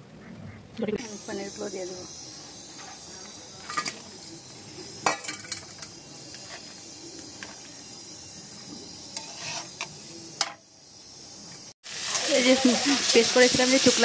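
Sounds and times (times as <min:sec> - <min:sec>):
steady sizzle: 0:00.8 - 0:14.0
metal spatula scraping pan: 0:09.1 - 0:09.9.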